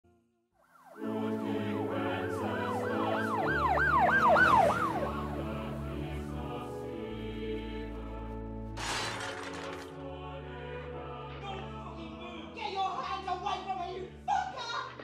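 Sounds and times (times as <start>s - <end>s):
emergency siren yelping: 0.8s - 5.8s
background music chords: 1.0s - 15.0s.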